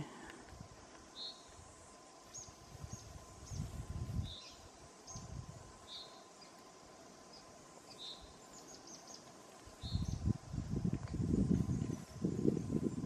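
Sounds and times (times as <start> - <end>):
faint bird chirps: 1.1 - 1.6, 2.2 - 10.3.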